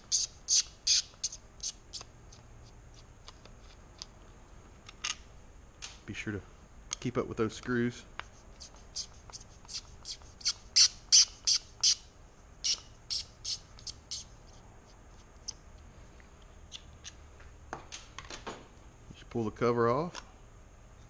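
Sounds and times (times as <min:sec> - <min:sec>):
screws squeaking: 0:00.0 - 0:02.1, 0:08.6 - 0:12.0, 0:12.6 - 0:14.3.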